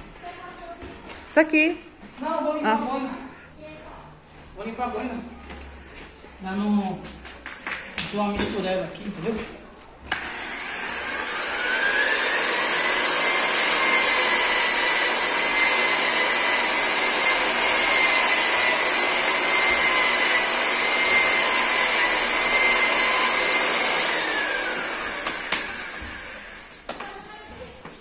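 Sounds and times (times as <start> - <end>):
electric polisher whine: 10.1 - 26.7.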